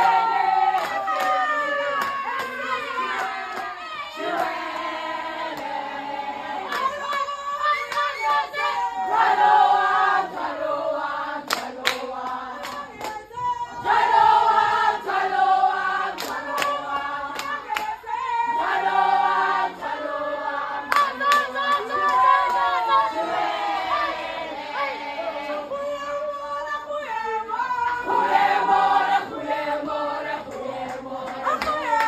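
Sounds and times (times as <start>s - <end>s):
women singing together: 0.0s - 32.0s
sharp hand claps: 0.8s - 1.4s, 11.5s - 12.0s, 12.6s - 13.2s, 17.4s - 17.9s.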